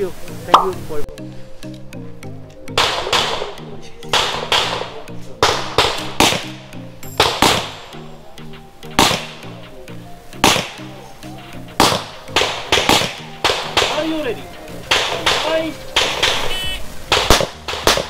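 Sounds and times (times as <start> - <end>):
background music: 0.0 - 18.0
pistol shots: 2.8 - 6.6, 7.2 - 7.9, 8.9 - 9.5, 10.4 - 10.8, 11.8 - 14.2, 14.9 - 16.4, 17.1 - 18.0.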